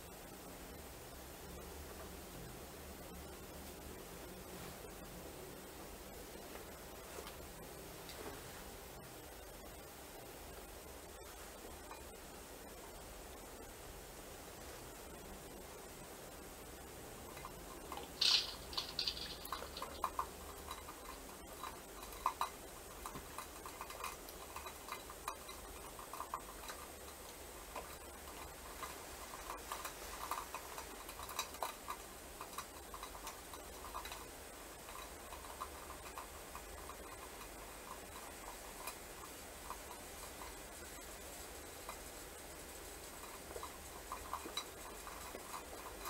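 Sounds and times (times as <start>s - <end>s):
faint hiss: 0.0s - 46.0s.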